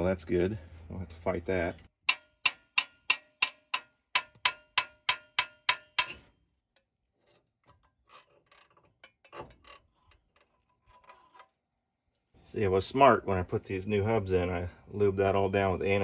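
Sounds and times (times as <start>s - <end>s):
hammer striking metal: 2.0s - 6.3s
metal part clunks: 2.1s - 11.5s.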